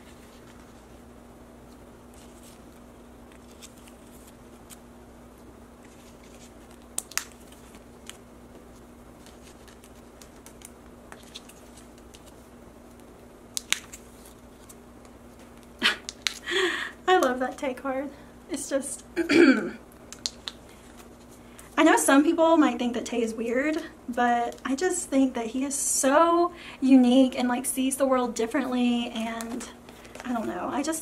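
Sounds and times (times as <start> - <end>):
plastic pages rustling: 0.0 - 1.0, 1.7 - 4.8, 5.8 - 16.5, 20.0 - 21.8, 29.2 - 31.0
steady low hum: 0.0 - 31.0.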